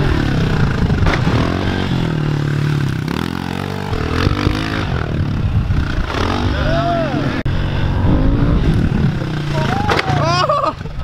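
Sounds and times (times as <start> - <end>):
motorbike engine revving: 0.0 - 11.0.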